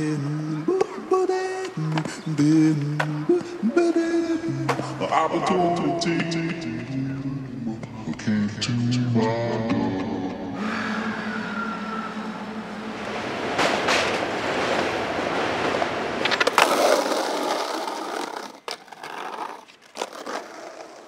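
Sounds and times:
skateboard wheels rolling on pavement: 0.0 - 8.5, 12.5 - 21.0
skateboard clacking on concrete: 2.8 - 5.1, 15.7 - 21.0.

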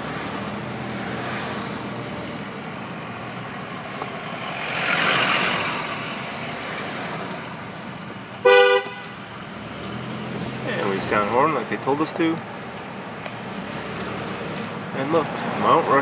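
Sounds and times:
car cabin road and engine noise: 0.0 - 16.0
oncoming vehicle passing: 3.6 - 7.4
car horn blast: 8.4 - 9.2.

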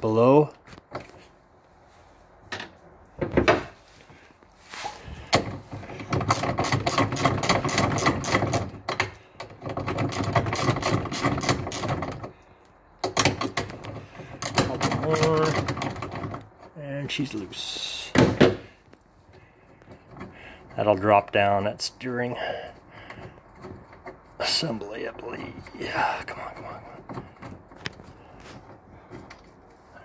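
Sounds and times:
rapid metallic clicking and rattling: 5.3 - 12.4, 13.0 - 16.8.

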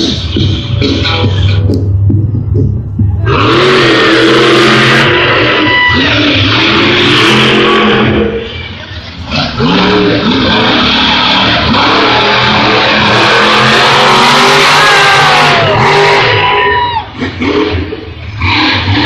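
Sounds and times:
monster truck engines revving: 0.0 - 19.0.

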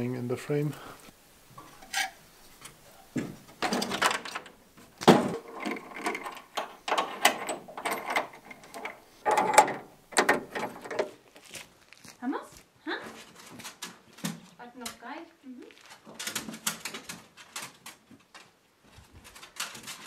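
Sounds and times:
metal door latch clanking: 3.6 - 11.1.

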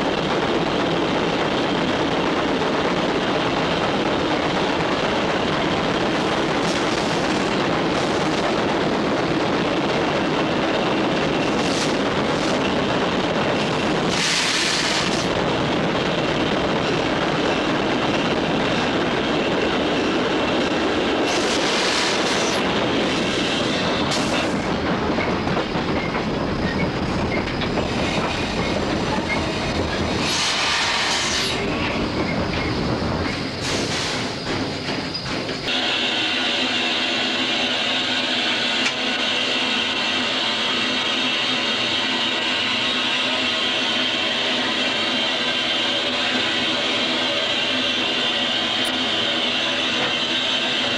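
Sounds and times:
train wheels on rails: 0.0 - 50.9
steam hissing bursts: 30.1 - 31.6, 33.5 - 34.5.

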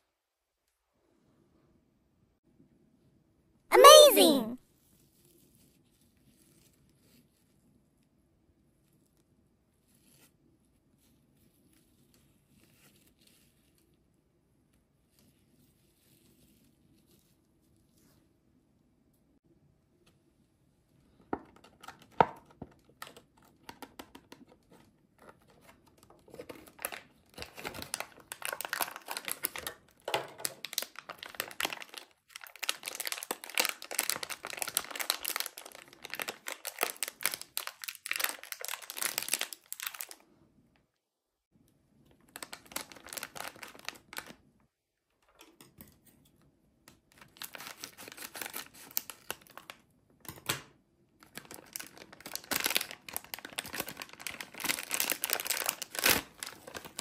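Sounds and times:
plastic packaging crinkling: 26.3 - 29.8, 30.4 - 40.2, 42.3 - 44.4, 47.2 - 49.8, 51.2 - 57.0
scissors cutting plastic: 47.4 - 49.4.

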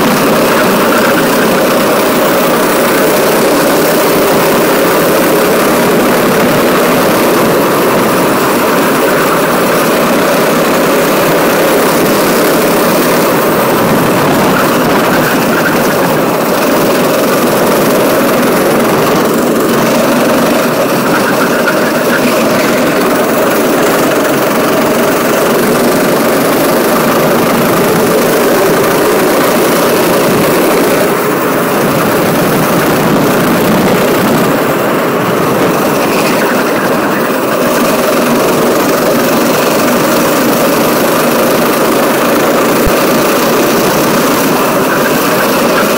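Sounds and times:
go-kart engine at racing speed: 0.0 - 45.9.

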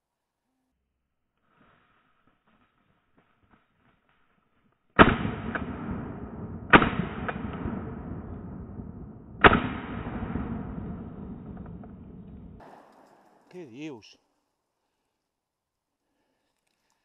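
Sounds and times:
shotgun shots echoing: 5.0 - 13.4.

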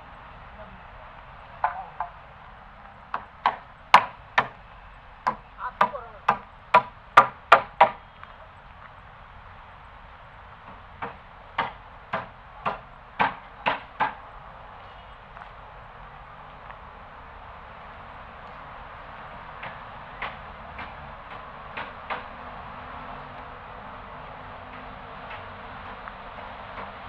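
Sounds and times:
sharp knocks: 3.1 - 4.6, 5.2 - 8.0, 10.7 - 14.2.

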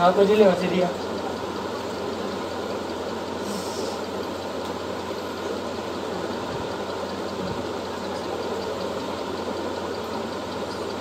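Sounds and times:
steady mechanical running noise: 0.0 - 11.0.

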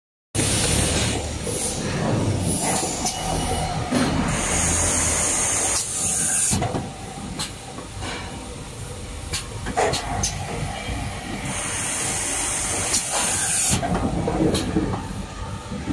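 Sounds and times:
machine and conveyor running: 0.4 - 15.9
compressed air hissing: 9.3 - 13.8.

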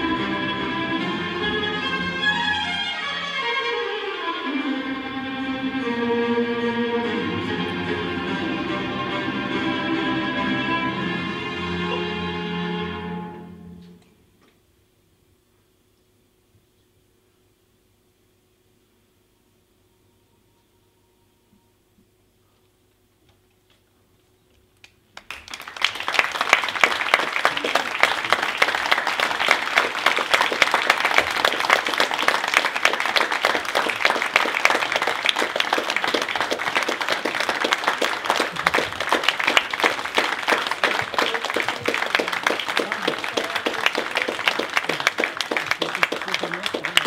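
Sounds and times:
audience applauding: 25.2 - 47.0.

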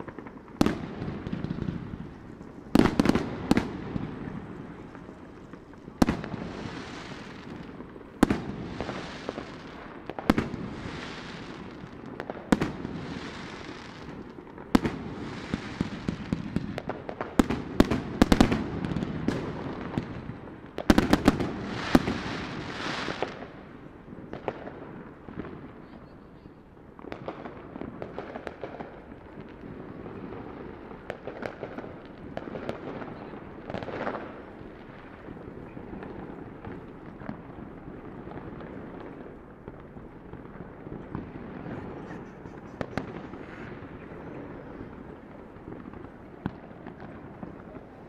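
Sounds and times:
crackling hiss: 0.0 - 48.0
fireworks exploding: 0.0 - 48.0.

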